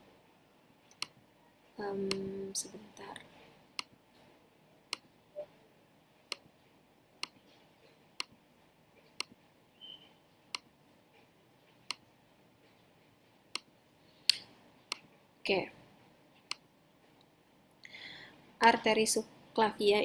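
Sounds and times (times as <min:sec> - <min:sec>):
computer mouse clicking: 0:09.2 - 0:09.4.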